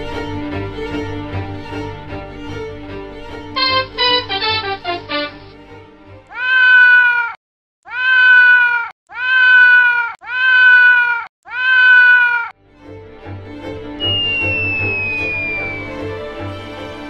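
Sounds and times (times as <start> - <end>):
cat meowing: 6.3 - 12.5.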